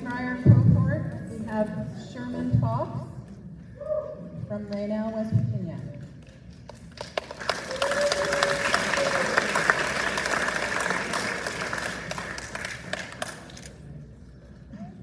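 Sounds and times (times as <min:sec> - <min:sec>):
audience applauding: 0:06.9 - 0:13.7.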